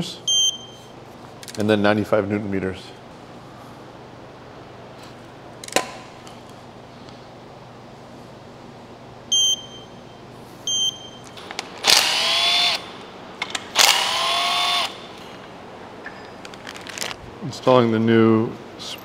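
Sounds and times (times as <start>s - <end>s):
torque wrench beeps: 0.3s - 0.9s, 9.3s - 10.0s, 10.7s - 11.3s
cordless driver motor whine: 11.8s - 12.9s, 13.8s - 15.0s.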